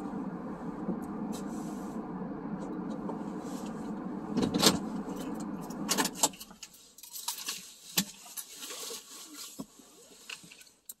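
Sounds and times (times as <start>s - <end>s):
car engine idling: 0.0s - 6.7s.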